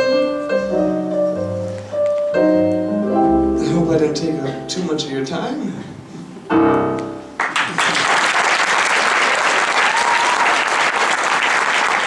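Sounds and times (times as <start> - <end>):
audience applauding: 7.4 - 12.0.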